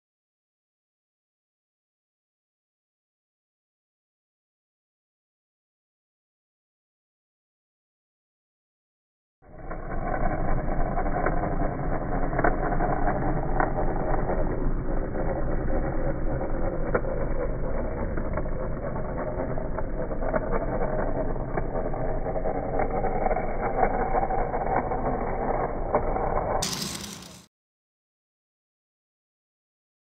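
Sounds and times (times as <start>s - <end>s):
electric motor and gearbox running: 9.5s - 27.5s.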